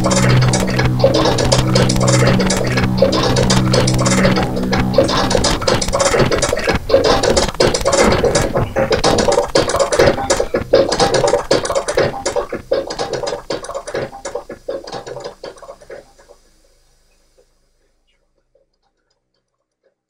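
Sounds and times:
distorted electronic synth music: 0.0 - 19.1.

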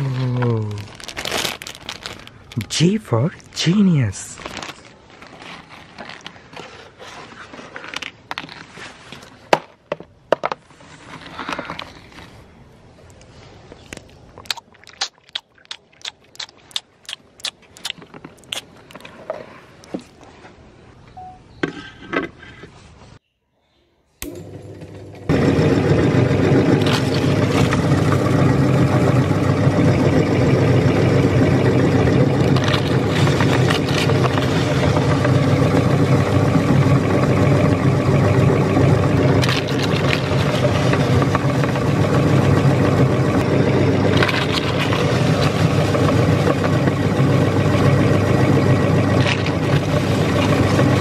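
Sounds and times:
meat grinder motor humming: 24.2 - 51.0.

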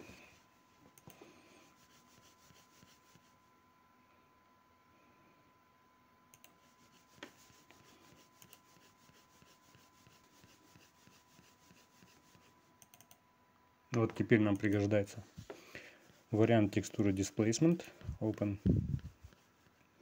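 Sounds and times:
faint steady hum: 0.0 - 20.0
computer mouse clicks: 1.0 - 1.2, 6.3 - 7.4, 8.4 - 8.7, 12.0 - 13.2.

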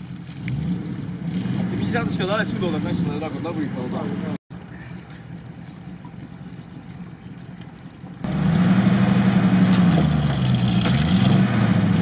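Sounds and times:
faint engine hum: 0.0 - 11.0
truck engine running loud: 8.3 - 12.0.

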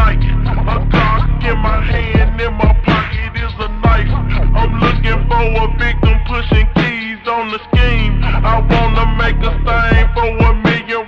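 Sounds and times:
hip-hop music with heavy bass: 0.0 - 11.0
melodic vocal line: 0.0 - 11.0.

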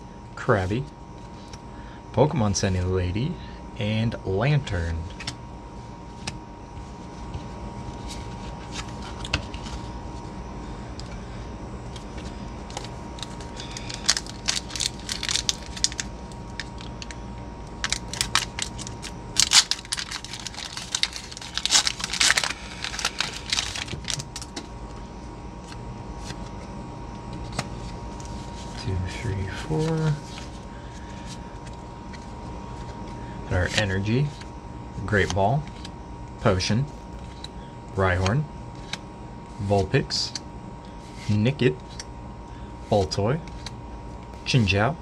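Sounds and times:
foil wrapper tearing and crinkling: 12.7 - 17.2, 17.8 - 24.5.

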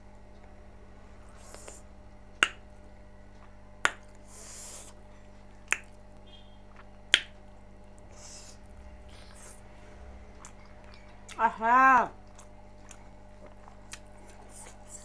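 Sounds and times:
loud mouth smacks while eating: 5.7 - 6.0.

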